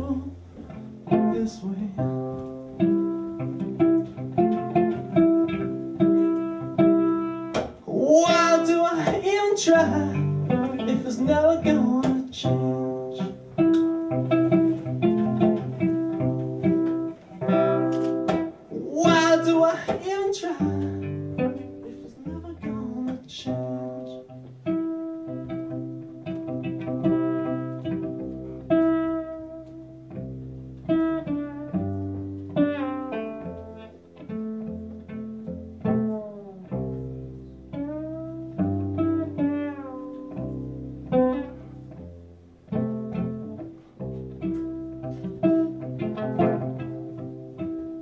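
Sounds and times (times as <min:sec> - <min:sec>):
man singing: 0:00.0 - 0:00.4, 0:01.1 - 0:02.4, 0:07.8 - 0:13.4, 0:18.7 - 0:21.0, 0:21.8 - 0:24.4
pizzicato cello: 0:00.0 - 0:48.0.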